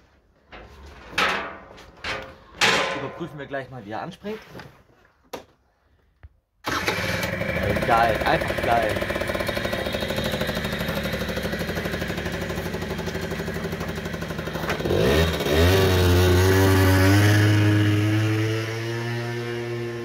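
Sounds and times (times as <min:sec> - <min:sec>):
scooter engine idling and revving: 0:06.7 - 0:20.0.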